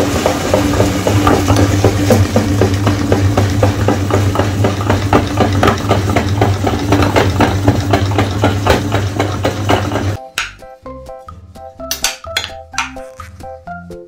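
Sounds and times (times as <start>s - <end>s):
low grinder hum: 0.0s - 10.2s
meat grinder crunching cookies: 0.0s - 10.2s.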